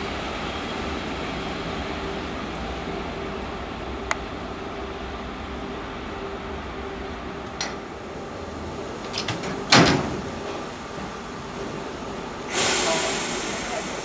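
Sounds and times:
steam hissing: 0:12.4 - 0:14.0.

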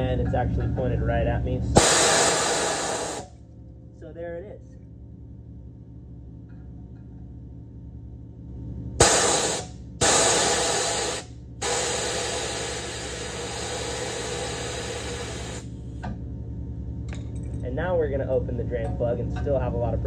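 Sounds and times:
compressed air hissing: 0:01.8 - 0:03.3, 0:09.0 - 0:15.7.

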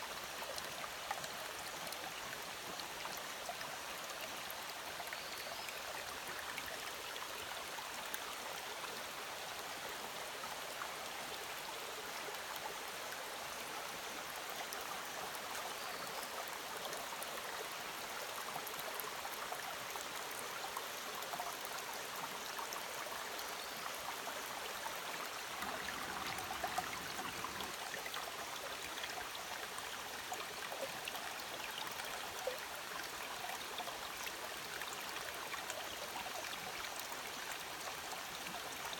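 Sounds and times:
stream babbling over rocks: 0:17.8 - 0:38.9.

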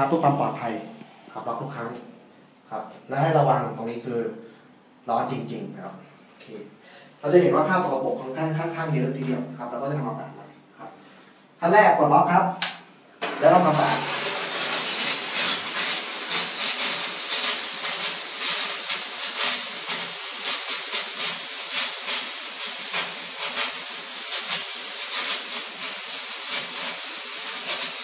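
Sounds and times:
steam cleaner hissing: 0:13.2 - 0:28.0.

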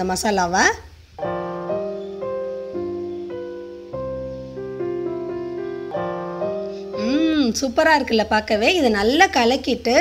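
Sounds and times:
gentle piano melody: 0:01.2 - 0:08.2.

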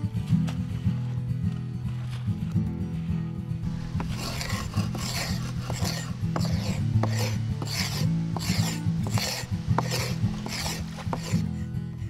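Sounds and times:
background music: 0:00.0 - 0:12.0
hand tool scraping charred wood: 0:03.6 - 0:11.8.

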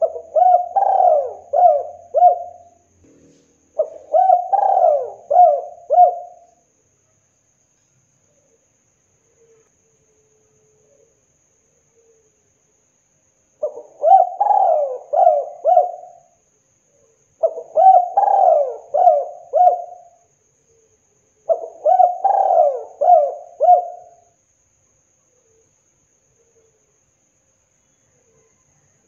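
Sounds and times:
dove cooing: 0:00.0 - 0:06.5, 0:13.6 - 0:16.4, 0:17.4 - 0:20.2, 0:21.5 - 0:24.3.

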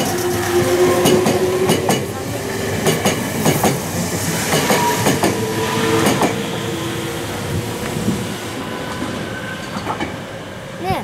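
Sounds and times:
train wheels clacking over rail joints: 0:00.0 - 0:06.6, 0:08.9 - 0:10.2
steady train whine: 0:00.0 - 0:11.0.

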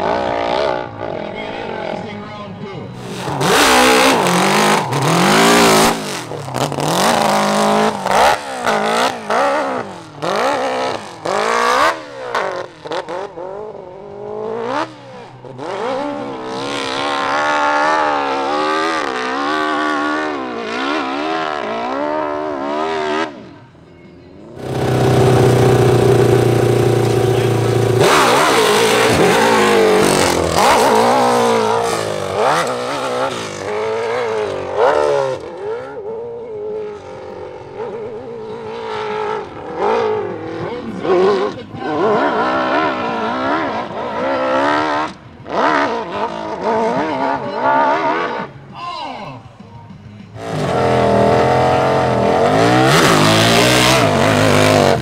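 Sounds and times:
motorcycle engine revving hard: 0:03.0 - 0:23.4, 0:24.6 - 0:36.0, 0:50.4 - 0:55.0.

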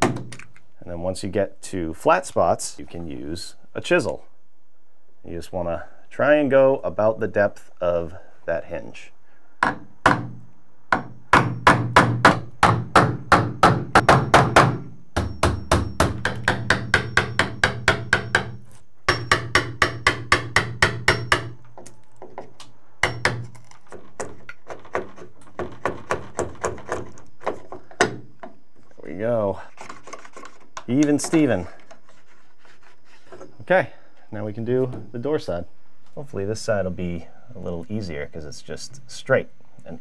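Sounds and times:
hammer tapping wood chisel: 0:10.9 - 0:23.5.

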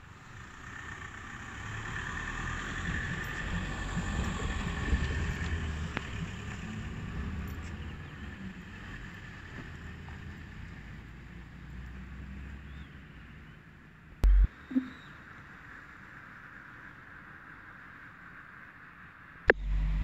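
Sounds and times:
road vehicle passing: 0:00.0 - 0:13.5, 0:19.5 - 0:20.0
sharp click: 0:14.2 - 0:14.9.

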